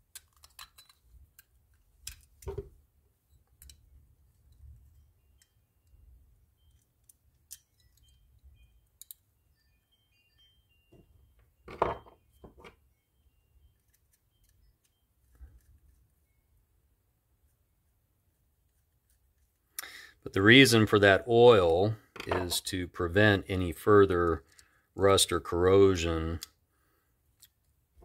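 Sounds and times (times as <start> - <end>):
small metal parts clicking: 0.0 - 2.5, 3.3 - 9.3.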